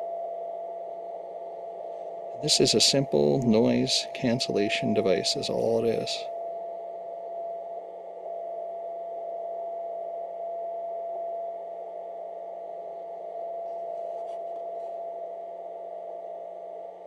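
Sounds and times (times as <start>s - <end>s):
steady interference tone: 0.0s - 17.0s
radio band hiss: 2.4s - 6.3s.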